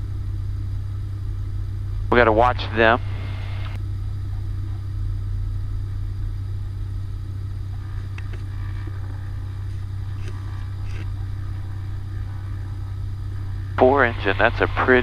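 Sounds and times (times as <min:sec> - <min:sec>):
aircraft engine droning: 0:00.0 - 0:15.0.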